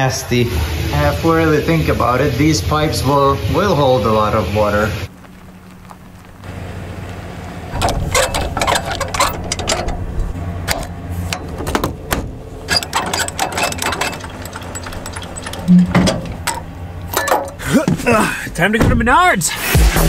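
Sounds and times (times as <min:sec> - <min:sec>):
low steady hum: 0:00.0 - 0:19.4
metal hitch clanking: 0:07.6 - 0:18.2
trailer jack cranking: 0:07.7 - 0:18.1.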